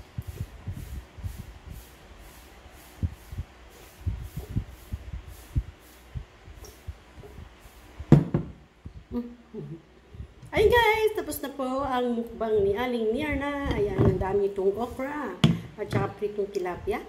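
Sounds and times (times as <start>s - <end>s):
bowl knocking on table: 8.1s - 8.6s.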